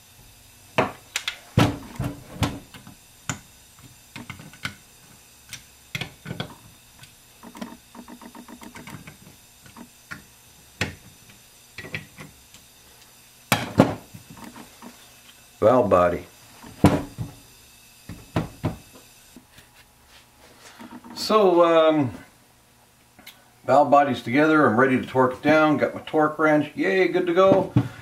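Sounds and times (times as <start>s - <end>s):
rapid ticks: 6.5s - 10.0s.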